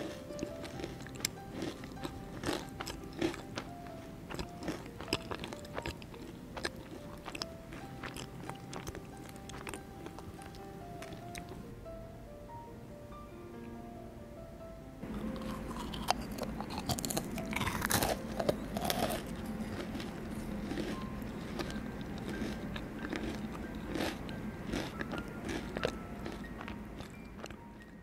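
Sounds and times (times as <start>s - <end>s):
crunchy bites into cookie: 0.0s - 3.7s, 15.1s - 27.6s
crackly chewing: 0.0s - 11.7s, 15.0s - 28.0s.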